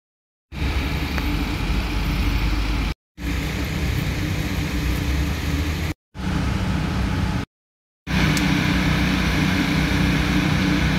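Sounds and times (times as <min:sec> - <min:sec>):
street traffic: 0:00.5 - 0:07.5.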